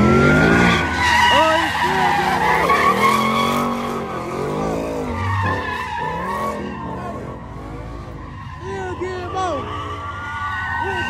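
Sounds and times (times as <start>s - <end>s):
car engine revving: 0.0s - 11.0s
tyres squealing: 0.4s - 11.0s.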